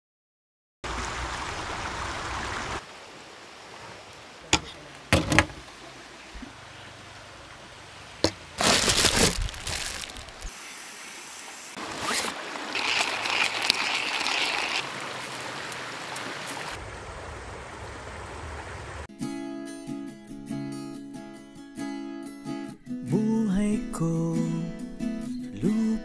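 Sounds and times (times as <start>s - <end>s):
rushing river water: 0.8s - 19.1s
rustling noise: 8.2s - 10.5s.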